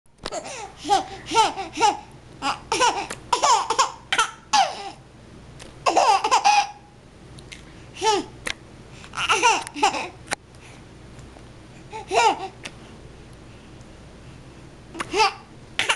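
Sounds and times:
baby laughing: 0.3 - 5.0, 5.8 - 6.8, 9.2 - 10.2, 11.9 - 12.6, 15.0 - 15.9.

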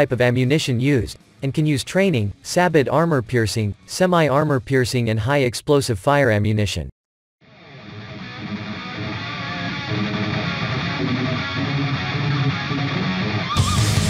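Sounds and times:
strummed guitar music: 7.5 - 14.0.

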